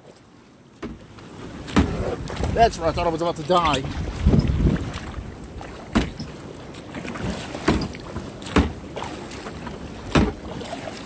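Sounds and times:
water splashing against kayak: 0.0s - 11.0s
wind noise on microphone: 1.7s - 6.4s.

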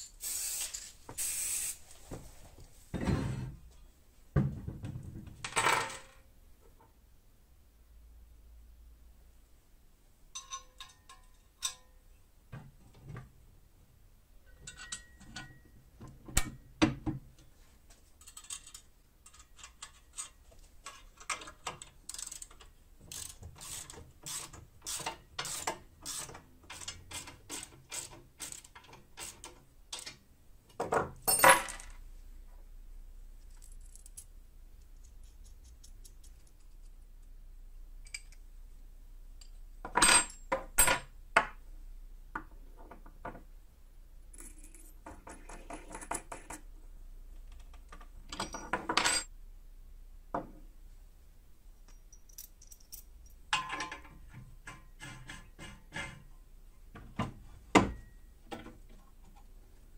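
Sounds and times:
steel parts knocking and clinking: 10.3s - 11.9s, 14.5s - 15.7s, 51.8s - 56.2s.

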